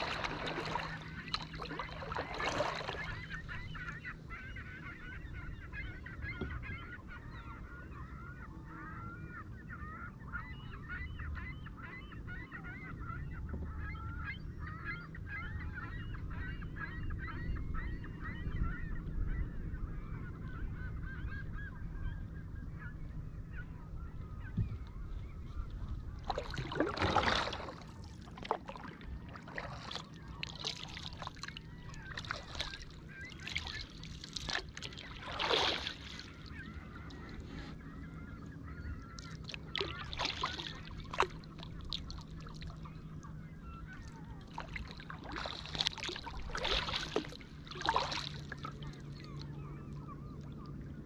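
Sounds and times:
loud splashes: 0:00.0 - 0:03.1, 0:26.3 - 0:27.8, 0:34.4 - 0:36.2
flock of birds calling: 0:00.0 - 0:19.5, 0:28.8 - 0:41.9
rumble of water and wind: 0:00.0 - 0:51.0.

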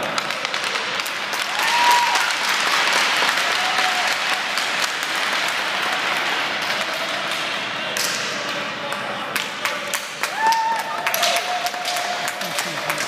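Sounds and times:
spectators clapping: 0:00.0 - 0:08.1, 0:08.9 - 0:13.0.

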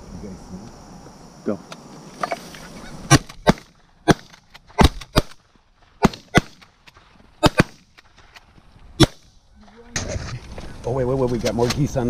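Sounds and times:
shotguns firing: 0:03.0 - 0:09.4.

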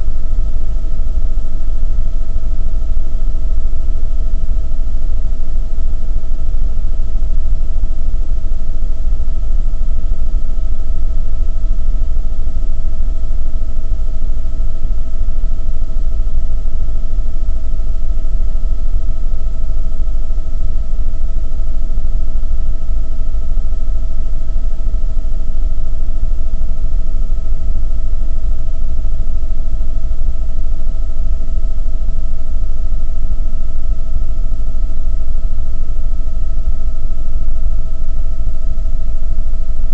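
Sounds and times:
high whine: 0:00.0 - 0:39.9.

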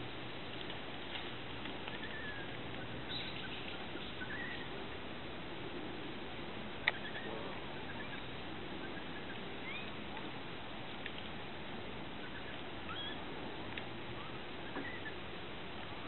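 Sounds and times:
faint outdoor hiss: 0:00.0 - 0:16.0
short high animal calls: 0:06.9 - 0:08.3, 0:12.2 - 0:13.2, 0:14.2 - 0:15.2.

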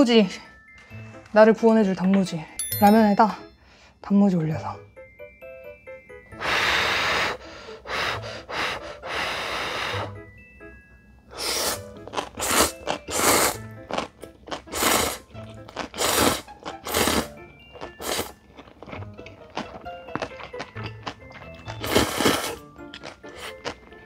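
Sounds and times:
soft background music: 0:00.0 - 0:24.0
person slurping noodles: 0:11.4 - 0:14.0, 0:14.6 - 0:17.3, 0:18.0 - 0:18.4, 0:21.8 - 0:22.6.

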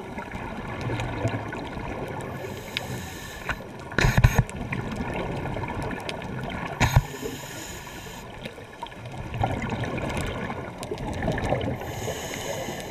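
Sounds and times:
exhaled bubbles rushing: 0:00.0 - 0:02.5, 0:08.8 - 0:11.9
regulator hissing inhale: 0:02.4 - 0:03.7, 0:06.8 - 0:08.5, 0:11.8 - 0:12.9.

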